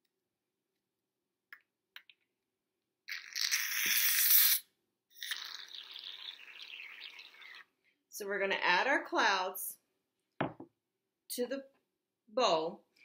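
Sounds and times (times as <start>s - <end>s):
aerosol can hissing foam: 3.6s - 4.6s.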